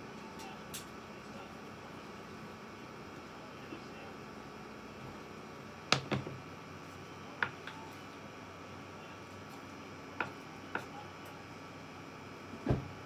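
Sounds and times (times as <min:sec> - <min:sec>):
faint steady hum: 0:00.0 - 0:13.0
cutting board knocks and clicks: 0:05.9 - 0:06.4, 0:12.6 - 0:12.9.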